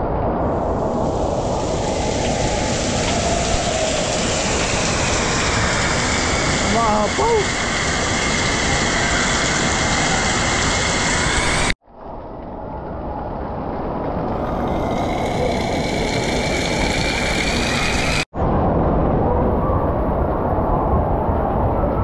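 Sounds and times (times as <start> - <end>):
rushing water echoing indoors: 0.0 - 11.8, 13.0 - 18.3.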